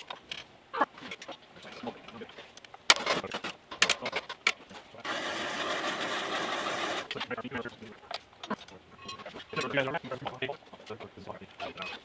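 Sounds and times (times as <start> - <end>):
metal tools clinking: 7.0 - 10.3.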